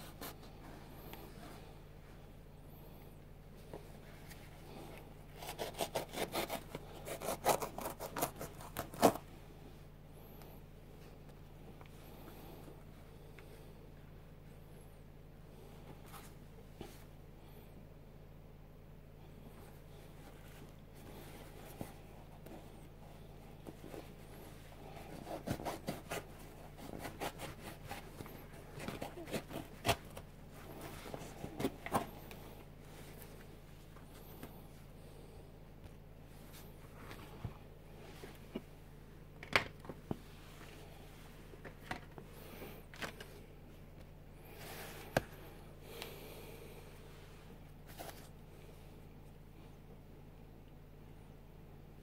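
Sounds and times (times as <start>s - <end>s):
scissors snipping shoe material: 5.4s - 9.2s.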